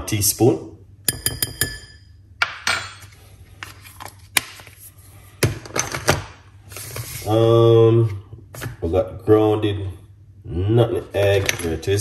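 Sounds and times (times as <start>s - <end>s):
spoon and jar taps and clicks: 1.1s - 2.7s.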